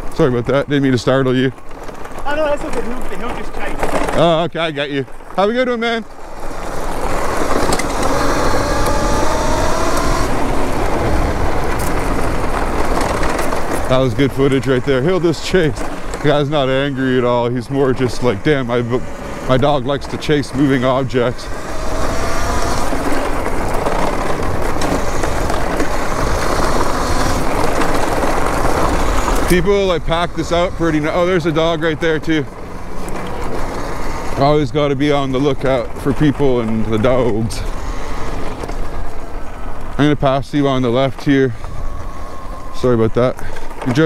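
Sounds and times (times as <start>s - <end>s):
tyres rumbling on gravel: 0.0s - 44.0s
electric motor whine: 6.2s - 14.0s, 21.4s - 35.0s, 36.9s - 43.8s.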